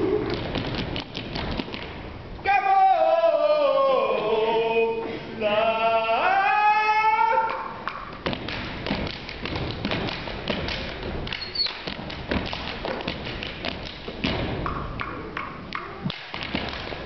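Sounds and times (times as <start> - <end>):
stomps on wooden stage floor: 0.3 - 2.0, 8.1 - 15.1, 15.7 - 17.0
hand claps: 7.5 - 17.0.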